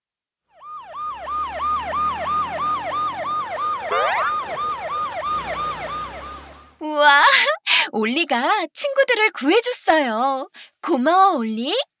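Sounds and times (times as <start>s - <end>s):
cartoon police siren yelping: 0.6s - 6.9s
short rising glide: 2.0s - 6.6s.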